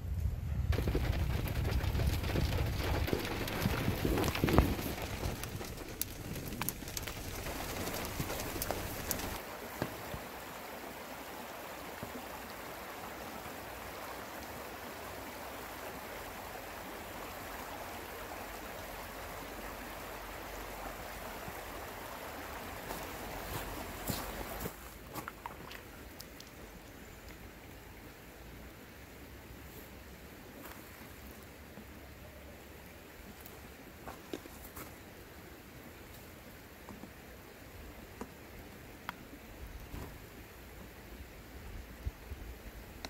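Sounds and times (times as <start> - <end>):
stream running over stones: 0.7 - 43.0
raindrops ticking on a car: 0.8 - 9.4.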